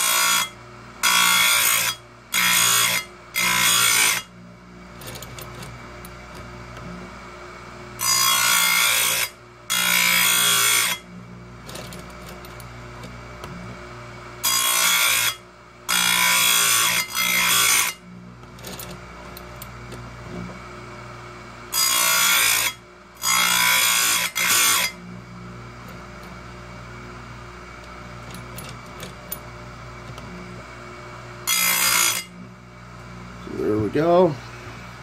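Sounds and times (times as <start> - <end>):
grinder motor humming: 0.0 - 35.0
chain grinder grinding: 4.9 - 6.9, 11.6 - 13.2, 14.6 - 20.5, 28.2 - 30.4.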